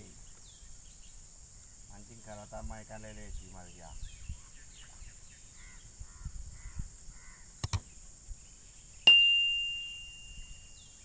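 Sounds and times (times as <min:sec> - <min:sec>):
crow cawing: 0:05.6 - 0:07.5
sharp clicks: 0:07.6 - 0:07.9
bell-like ding: 0:09.1 - 0:10.8.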